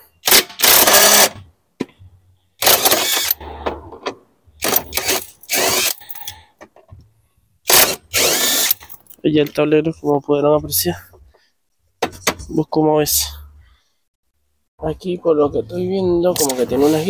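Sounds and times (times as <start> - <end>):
cordless impact wrench bursts: 0.2 - 1.4, 2.6 - 3.4, 4.6 - 6.0, 7.7 - 8.9.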